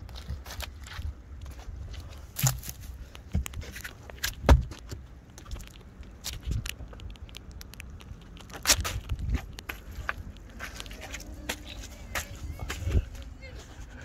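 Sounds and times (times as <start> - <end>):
footsteps on timber and mud: 0.0 - 14.0.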